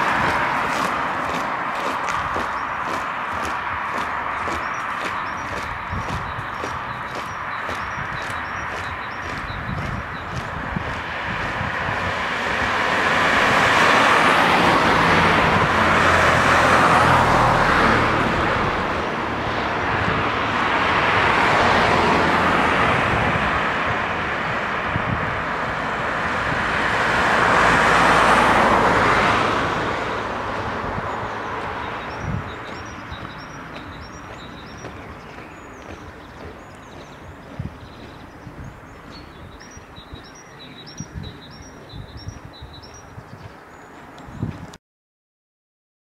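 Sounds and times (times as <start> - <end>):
cars passing on a road: 0.0 - 44.8.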